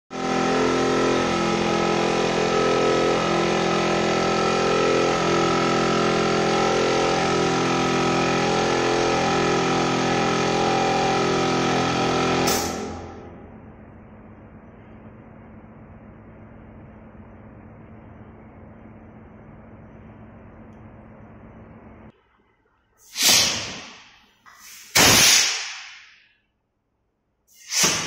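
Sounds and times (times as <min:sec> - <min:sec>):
air compressor motor hum: 0:00.1 - 0:22.2, 0:23.0 - 0:26.2, 0:27.4 - 0:28.0
sharp rush of air: 0:12.0 - 0:13.2, 0:23.0 - 0:26.3, 0:27.5 - 0:28.0.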